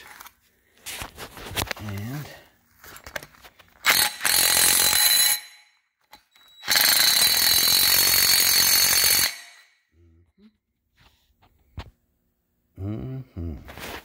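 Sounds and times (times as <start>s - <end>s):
impact wrench hammering: 3.8s - 9.8s.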